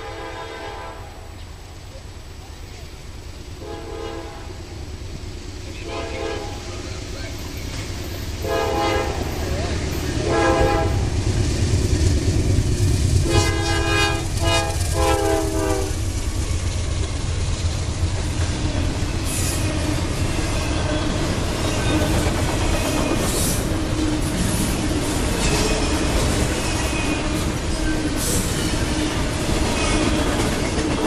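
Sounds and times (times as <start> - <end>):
locomotive horn blasts: 0.0 - 1.3, 3.6 - 4.6, 5.8 - 6.8, 8.4 - 9.4, 10.1 - 11.1, 13.2 - 16.0
train cars rumbling past: 0.0 - 31.0
wheels clacking over rail joints: 7.0 - 31.0.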